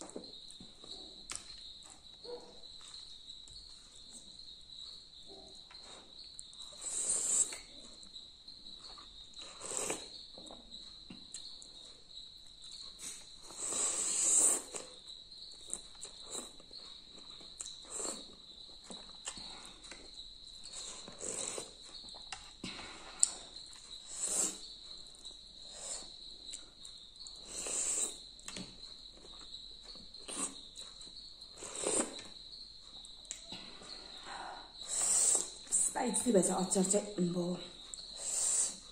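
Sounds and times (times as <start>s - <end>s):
slurping and chewing noodles: 5.6s - 35.7s.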